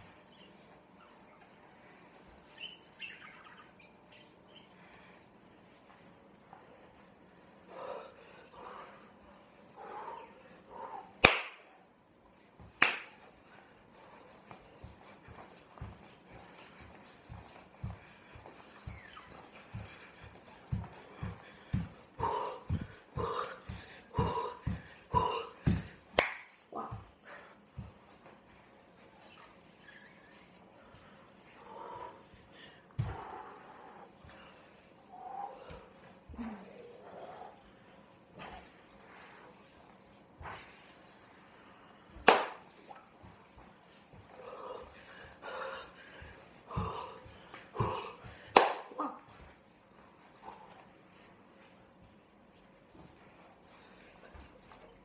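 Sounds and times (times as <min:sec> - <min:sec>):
sharp slaps: 0:11.2 - 0:11.7, 0:12.8 - 0:13.2, 0:25.7 - 0:26.6, 0:42.2 - 0:42.7, 0:48.5 - 0:49.0
sharp snap: 0:11.2 - 0:11.7, 0:12.8 - 0:13.2, 0:26.2 - 0:26.5, 0:42.2 - 0:42.6
feet thumping on floor: 0:14.0 - 0:28.6, 0:32.9 - 0:34.5, 0:42.2 - 0:51.3.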